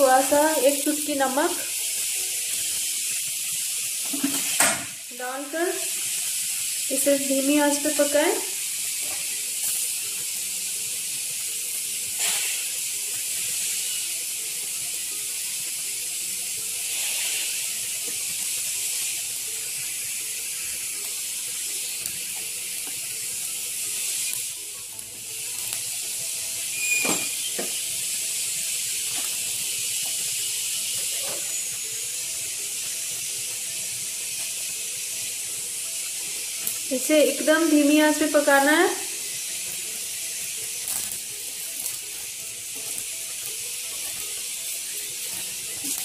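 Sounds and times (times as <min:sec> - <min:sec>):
egg sizzling in oil: 0:00.0 - 0:46.0.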